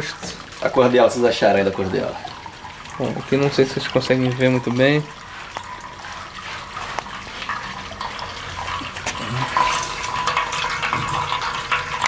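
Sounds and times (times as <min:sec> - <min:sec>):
liquid trickling and splashing into pot: 0:00.0 - 0:12.0.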